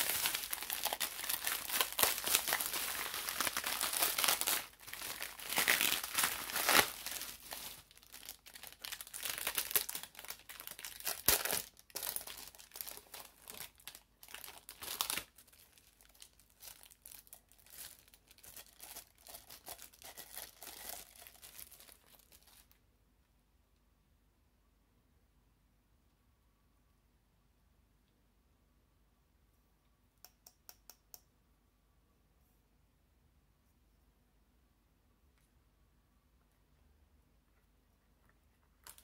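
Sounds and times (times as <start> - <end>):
bubble wrap crinkling: 0.0 - 22.8.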